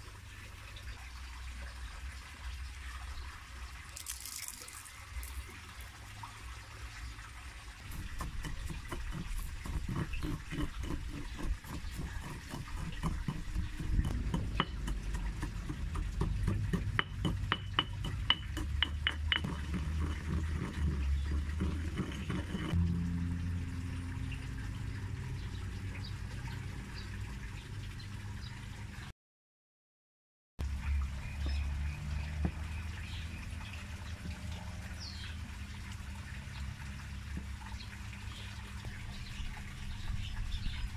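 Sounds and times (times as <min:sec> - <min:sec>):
soft steady grinding: 0:07.8 - 0:22.8
stone pestle pounding in mortar: 0:07.9 - 0:22.7.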